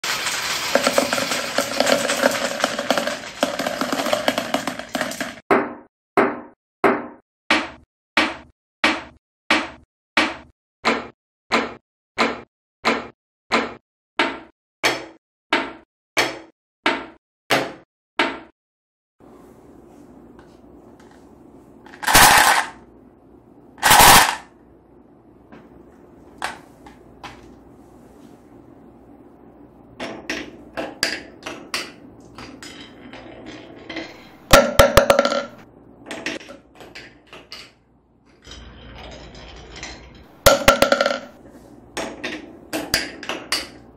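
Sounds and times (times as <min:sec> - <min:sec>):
marbles rattling on wooden track: 0:00.0 - 0:05.4, 0:21.9 - 0:22.8, 0:23.8 - 0:24.4
wooden blocks knocking on table: 0:00.8 - 0:05.7, 0:34.6 - 0:35.6, 0:40.5 - 0:41.3.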